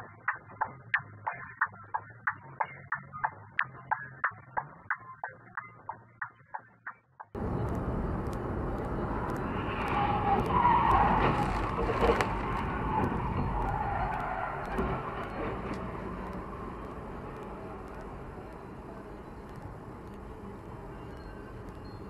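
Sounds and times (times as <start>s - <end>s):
road noise inside moving car: 7.4s - 22.0s
tyres skidding and squealing: 7.4s - 22.0s.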